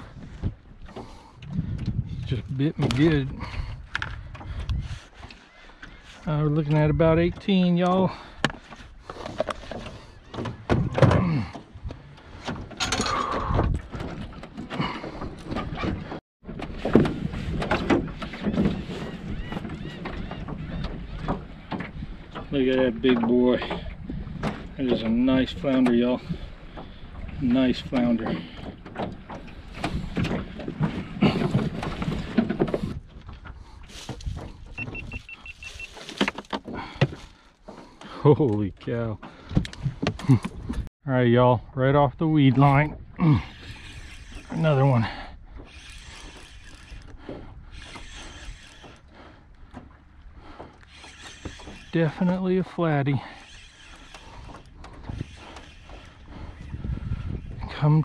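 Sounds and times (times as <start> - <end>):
knocks and thunks in boat: 0.0 - 40.9, 42.2 - 58.0
knocks bumps and rustling: 28.0 - 37.8
short high beeps: 34.8 - 35.9.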